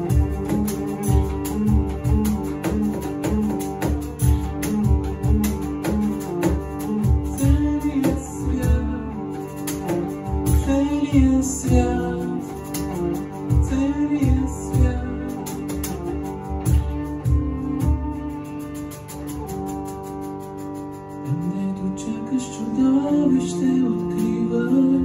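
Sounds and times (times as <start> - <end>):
cajon beating rhythm: 0.0 - 22.0
hurdy-gurdy melody with drone: 0.0 - 24.7
man singing: 7.2 - 16.0, 21.3 - 25.0.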